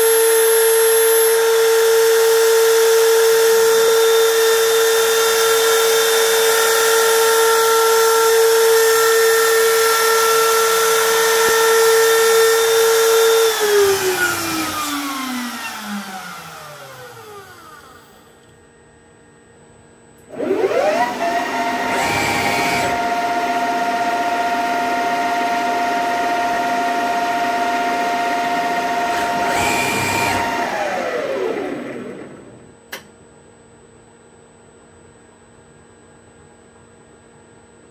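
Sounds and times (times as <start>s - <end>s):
motor spinning up and down: 0.0s - 18.5s, 20.2s - 32.7s
milling spindle whine: 0.0s - 18.6s.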